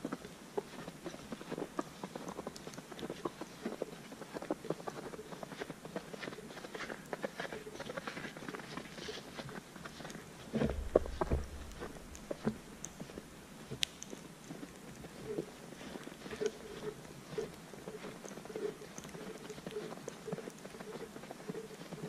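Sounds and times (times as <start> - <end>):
footsteps crunching in snow: 0.8 - 22.0
low rumble: 10.6 - 12.7.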